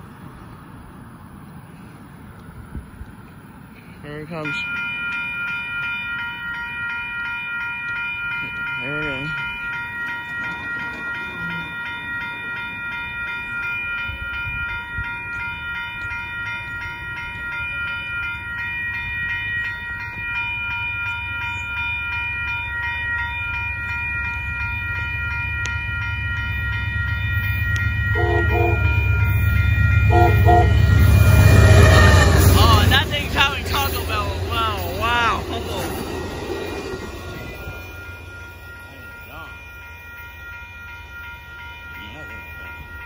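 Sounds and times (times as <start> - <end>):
train rumble: 0.0 - 43.0
railroad crossing bell ringing: 3.2 - 43.0
train horn blasts: 27.3 - 34.2.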